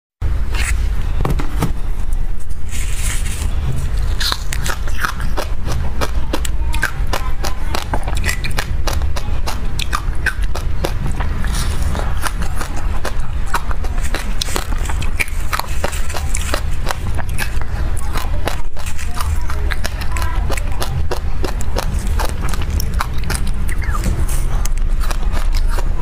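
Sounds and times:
steady low rumble: 0.2s - 26.0s
chewing and crunching: 2.8s - 26.0s.

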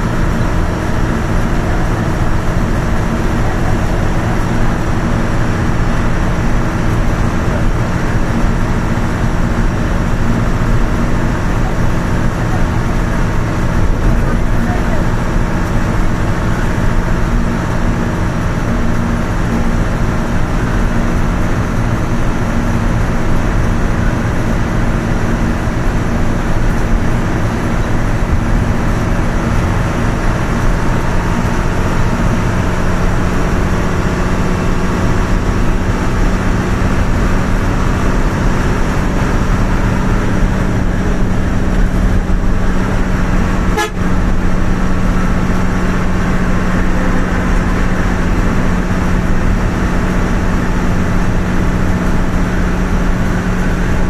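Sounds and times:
engine drone: 0.0s - 54.0s
road noise inside vehicle: 0.0s - 54.0s.

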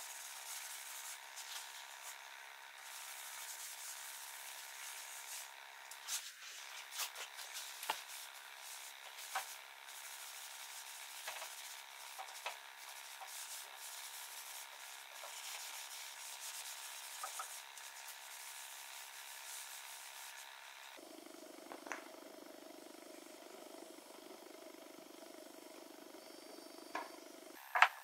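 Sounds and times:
hand rubbing wood boards: 2.9s - 20.5s.

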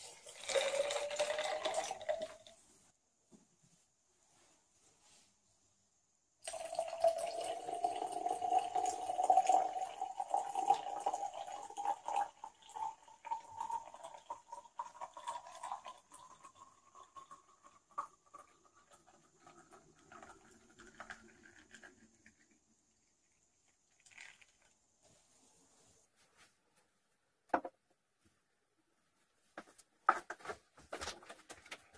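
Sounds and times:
coffee pouring into a bottle: 0.0s - 2.6s, 6.4s - 25.0s.

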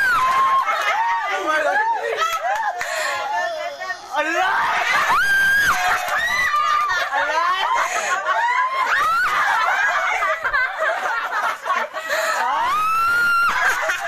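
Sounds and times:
people laughing and shrieking: 0.0s - 14.0s.

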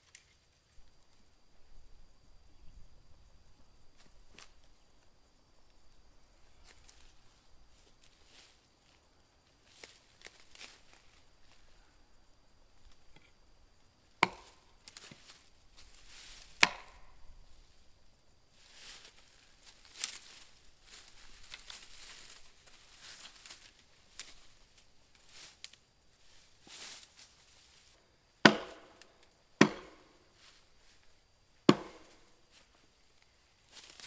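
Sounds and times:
axe striking wood: 14.2s - 14.6s, 16.6s - 17.0s, 28.4s - 29.0s, 29.6s - 30.1s, 31.7s - 32.2s
rustling: 18.5s - 28.0s.

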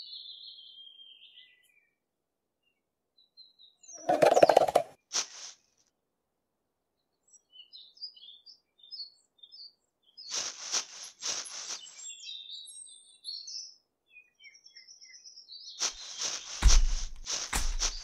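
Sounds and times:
small birds chirping: 0.0s - 2.0s, 7.2s - 18.0s
short bursts of noise: 15.8s - 18.0s.

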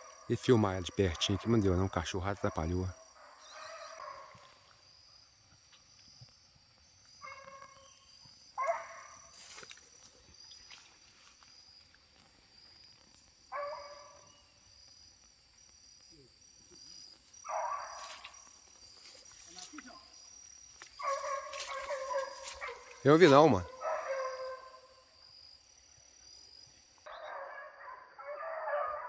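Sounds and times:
faint dogs barking: 0.0s - 4.8s, 7.2s - 10.3s, 13.5s - 14.5s, 17.4s - 19.8s, 20.9s - 25.0s, 27.1s - 29.0s
insects droning: 0.0s - 29.0s.

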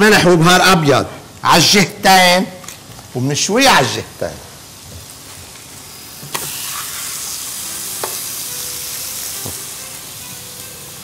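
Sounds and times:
chicken sizzling on a griddle: 3.2s - 11.0s.

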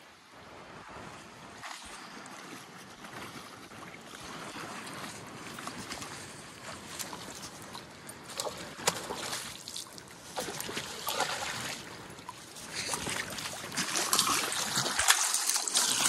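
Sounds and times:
fish splashing in water: 8.3s - 11.9s, 12.6s - 16.0s.

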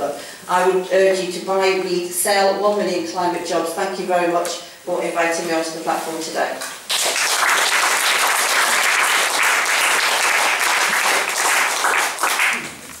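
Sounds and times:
audience applauding: 6.9s - 12.8s.

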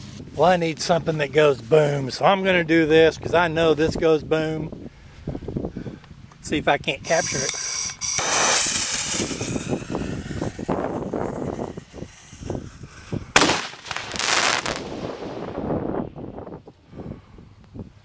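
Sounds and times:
firework hissing launch: 7.0s - 16.0s
firework bursts: 7.0s - 16.1s
firework cracks and pops: 8.1s - 16.0s.

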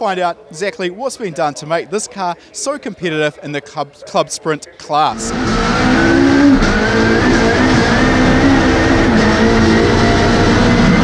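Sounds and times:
car engine running under load: 5.1s - 11.0s.

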